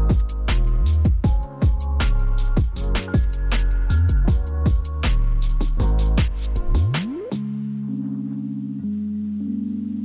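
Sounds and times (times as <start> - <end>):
steady drum beat: 0.0 - 7.1
music with deep bass: 0.0 - 10.0.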